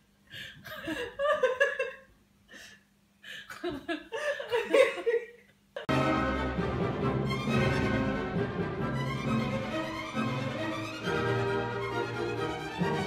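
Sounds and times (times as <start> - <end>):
person laughing: 0.4 - 5.9.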